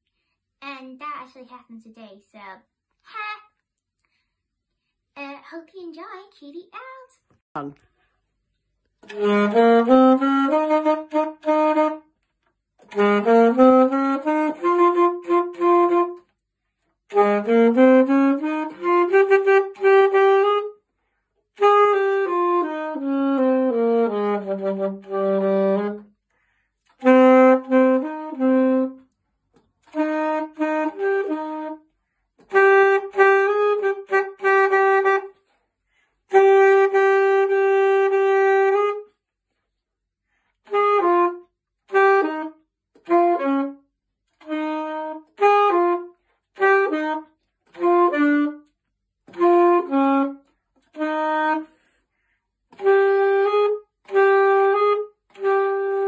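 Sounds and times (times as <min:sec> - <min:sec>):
alto saxophone playing: 0:09.0 - 0:16.4, 0:17.0 - 0:20.9, 0:21.5 - 0:26.2, 0:26.8 - 0:29.2, 0:29.8 - 0:35.6, 0:36.2 - 0:39.3, 0:40.6 - 0:51.9, 0:52.7 - 0:56.0.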